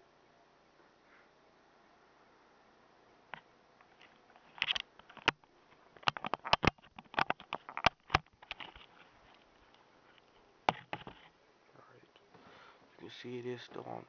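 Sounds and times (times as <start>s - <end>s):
camera handling clicks and knocks: 6.0s - 8.9s.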